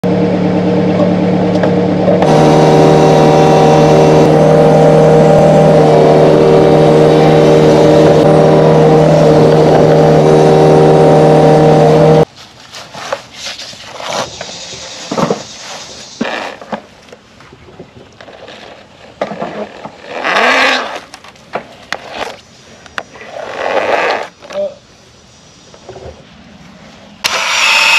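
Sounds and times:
mini excavator engine and hydraulics: 0:00.0 - 0:12.3, 0:12.9 - 0:27.9
scattered scrapes and knocks: 0:12.9 - 0:16.9.

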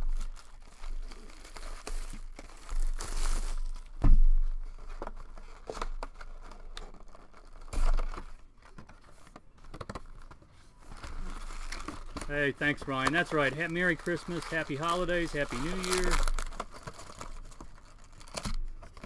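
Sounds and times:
plastic wrap tearing and crinkling: 0:00.0 - 0:19.0
cardboard rustling: 0:00.1 - 0:19.0.

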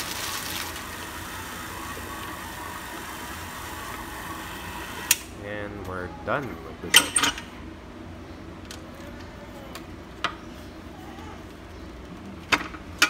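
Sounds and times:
stand mixer hum: 0:00.0 - 0:05.4.

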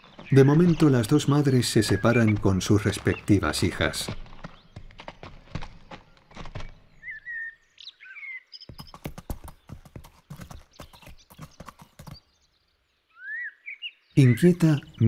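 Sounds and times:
hooves clicking on stones: 0:00.0 - 0:07.4, 0:08.7 - 0:12.2
small bird chirping: 0:00.0 - 0:15.0.

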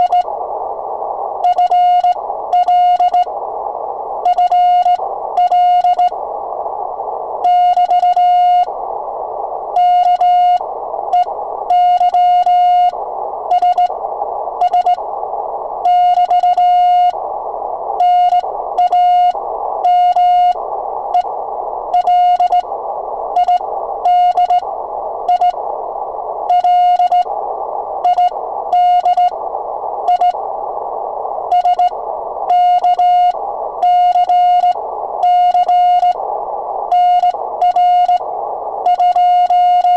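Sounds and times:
morse code sidetone: 0:00.0 - 0:00.3, 0:01.4 - 0:03.3, 0:04.2 - 0:06.2, 0:07.4 - 0:08.7, 0:09.8 - 0:14.0, 0:14.6 - 0:15.0, 0:15.8 - 0:17.2, 0:18.0 - 0:20.6, 0:22.0 - 0:22.7, 0:23.4 - 0:24.7, 0:25.3 - 0:25.6, 0:26.5 - 0:27.3, 0:28.0 - 0:29.4, 0:30.1 - 0:30.4, 0:31.5 - 0:36.2, 0:36.9 - 0:38.2, 0:38.8 - 0:39.9
radio band hiss: 0:00.0 - 0:39.9.

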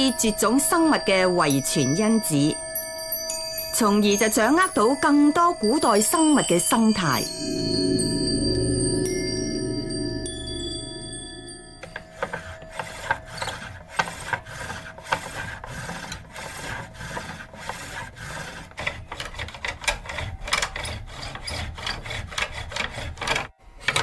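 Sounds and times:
bow drill rasping strokes: 0:01.8 - 0:19.3.

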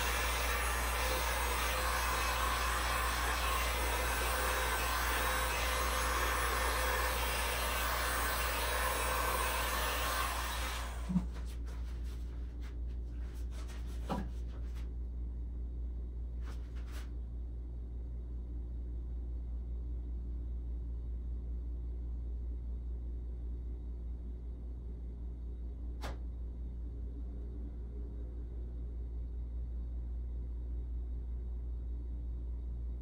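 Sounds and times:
heat gun blowing air: 0:00.0 - 0:11.3
low steady hum: 0:00.0 - 0:33.0.

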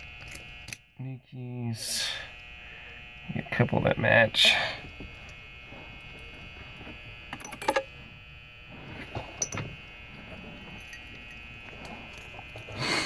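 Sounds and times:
faint steady hum: 0:00.0 - 0:13.0
keys jangling and clicking: 0:07.3 - 0:07.8.

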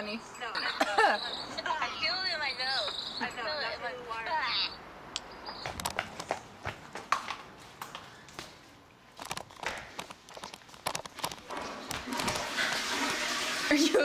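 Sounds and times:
footsteps running on tiled floor: 0:05.5 - 0:11.2.

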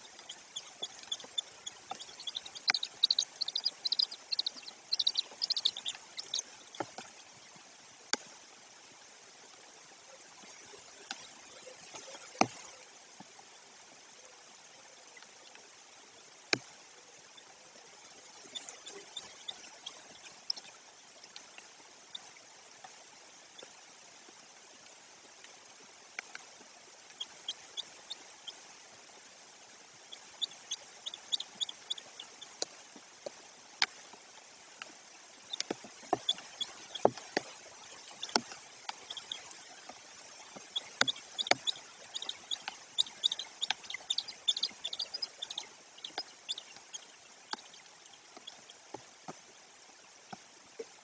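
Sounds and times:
high bird chirps: 0:00.0 - 0:06.6, 0:40.6 - 0:46.8
rain hiss: 0:00.0 - 0:51.0
drips hitting near microphone: 0:00.1 - 0:07.1.

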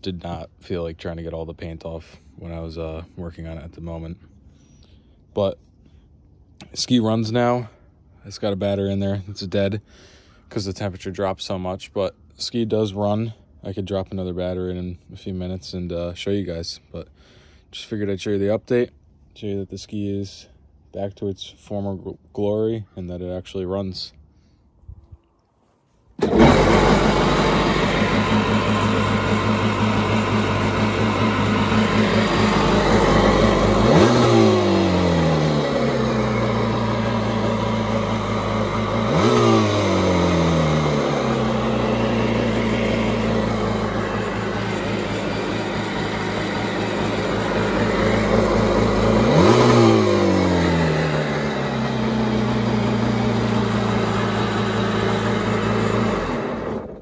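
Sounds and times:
engine revving: 0:26.2 - 0:57.0
jet ski engine idling: 0:26.2 - 0:57.0.

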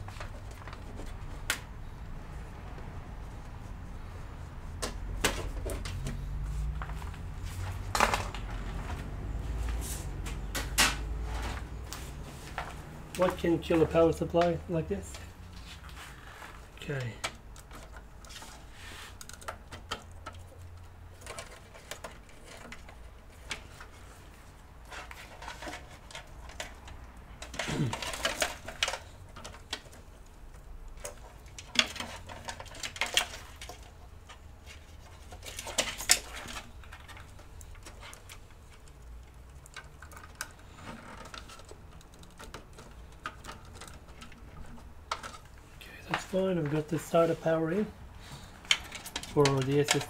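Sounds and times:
plastic cables clicking and rattling: 0:16.6 - 0:47.9, 0:48.5 - 0:50.0.

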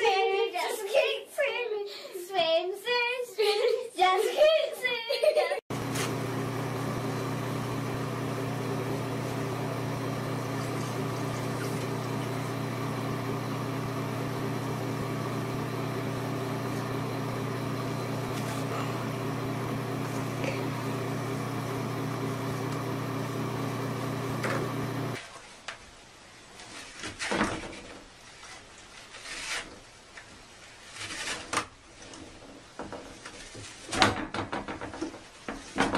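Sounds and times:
mechanical hum: 0:05.7 - 0:25.3.

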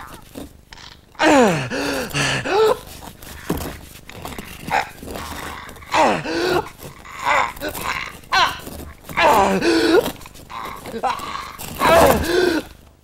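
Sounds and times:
heavy breathing: 0:01.2 - 0:12.9
man groaning with effort: 0:05.9 - 0:12.7.

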